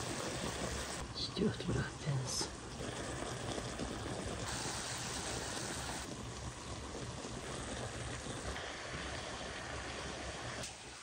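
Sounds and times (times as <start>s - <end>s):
cauliflower sizzling in a pan: 3.8s - 11.0s.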